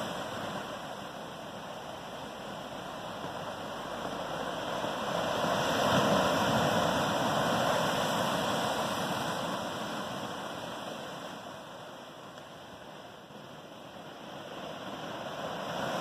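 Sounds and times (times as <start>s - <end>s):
surf breaking on rocks: 0.0s - 11.5s.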